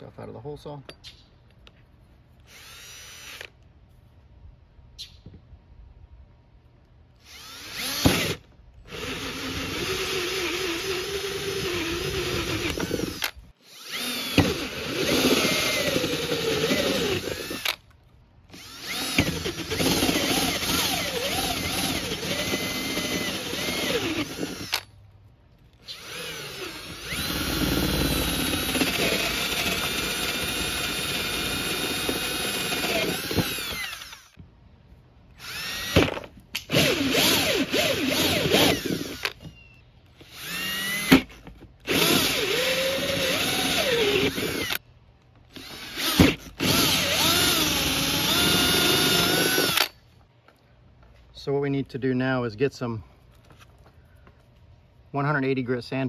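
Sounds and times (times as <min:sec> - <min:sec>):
cordless drill motor whining: 0:02.4 - 0:03.6, 0:07.2 - 0:17.9, 0:18.5 - 0:24.9, 0:25.8 - 0:34.4, 0:35.4 - 0:44.8, 0:45.5 - 0:50.0.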